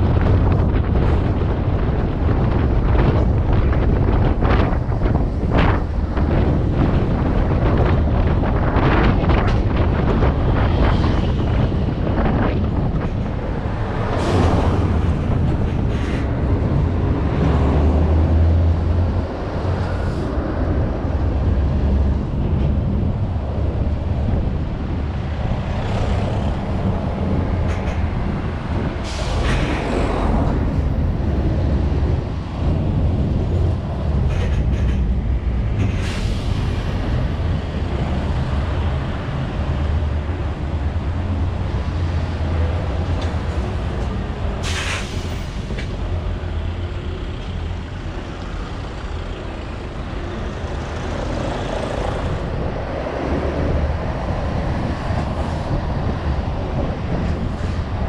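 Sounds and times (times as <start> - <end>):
road noise: 0.0 - 58.0
air brake hisses: 44.6 - 45.6.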